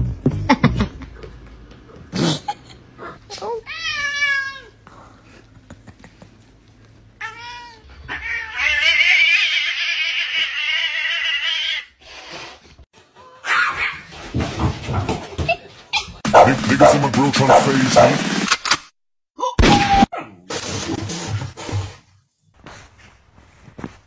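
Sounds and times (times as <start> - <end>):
cat yowling harshly: 7.2 - 11.9, 13.3 - 14.1.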